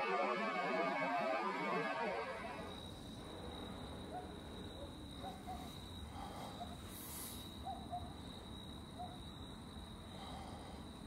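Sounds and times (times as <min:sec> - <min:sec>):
high-pitched insect-like tone: 0:01.8 - 0:04.0.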